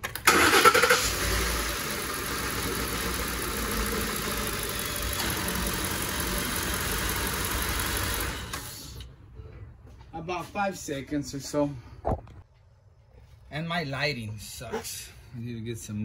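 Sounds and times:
engine starting and idling: 0.0 - 9.1.

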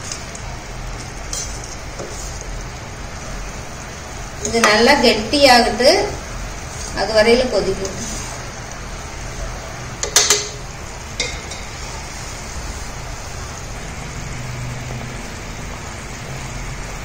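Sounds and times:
gravy bubbling and sizzling in oil: 0.0 - 17.0
metal ladle clinking against pan: 10.0 - 10.6.

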